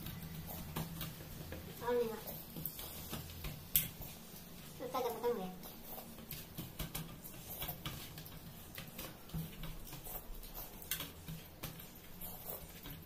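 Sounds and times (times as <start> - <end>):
fingers eating from steel plates: 4.9 - 13.0.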